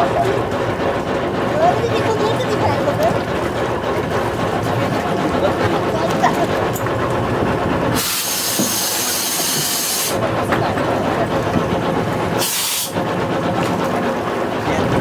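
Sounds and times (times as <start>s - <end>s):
boat engine humming: 0.0s - 15.0s
compressed air hissing: 8.0s - 10.2s, 12.4s - 13.0s.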